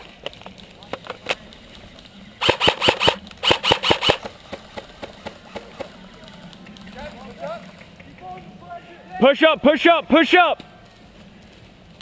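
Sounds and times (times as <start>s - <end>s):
airsoft rifle shots: 2.4s - 5.7s.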